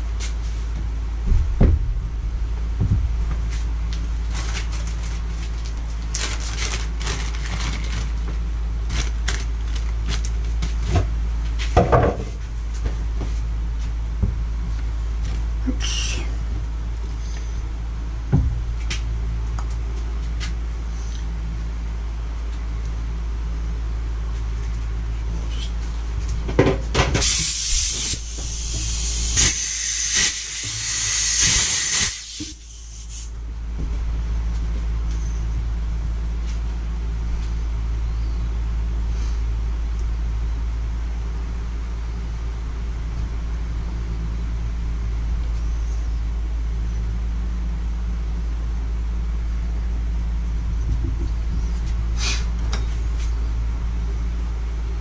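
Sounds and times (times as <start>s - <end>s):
steady low hum: 0.0s - 55.0s
loud hissing: 27.2s - 33.3s.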